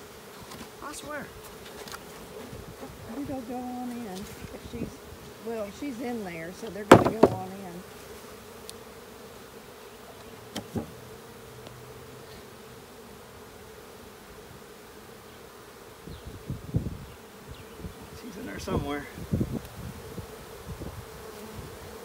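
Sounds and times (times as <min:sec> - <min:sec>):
bees buzzing: 0:00.0 - 0:22.0
low knocks: 0:06.9 - 0:07.5.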